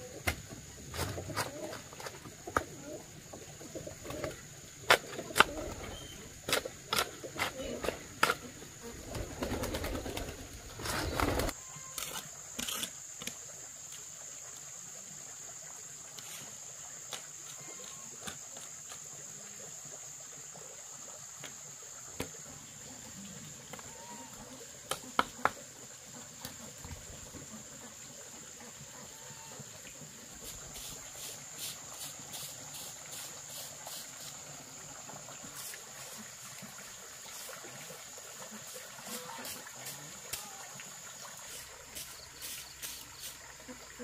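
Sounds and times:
dove cooing: 1.0s - 3.1s, 3.7s - 4.4s, 5.2s - 6.3s.

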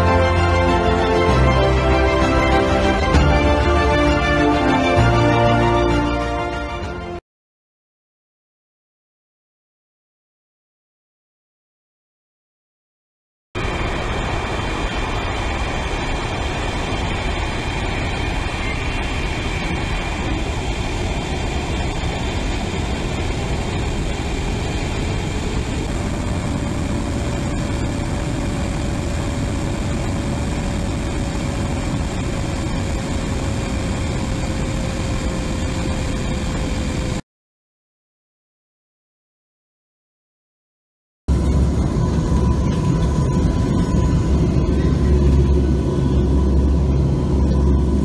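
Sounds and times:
jet engines roaring: 0.0s - 6.3s, 13.6s - 37.2s, 41.3s - 48.0s
faint whine: 13.6s - 37.2s, 41.3s - 48.0s.

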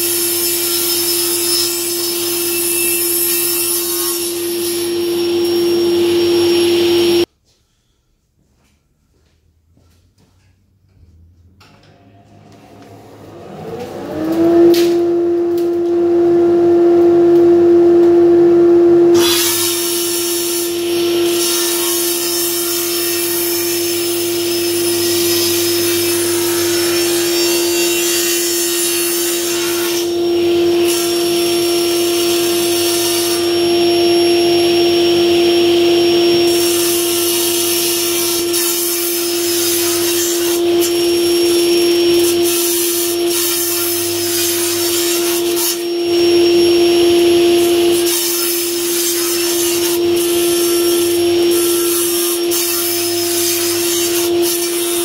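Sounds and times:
saw blade cutting wood: 0.0s - 7.3s, 19.2s - 34.6s, 36.3s - 55.0s
table saw whine: 0.0s - 7.3s, 11.9s - 55.0s.

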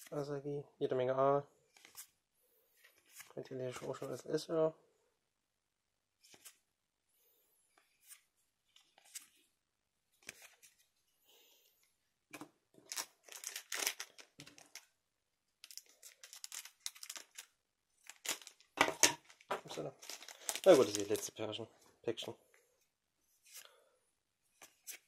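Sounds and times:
trading cards rustling: 12.8s - 14.9s, 15.6s - 21.4s
foil wrapper crinkling: 12.9s - 14.9s, 15.6s - 19.4s, 20.0s - 21.3s.

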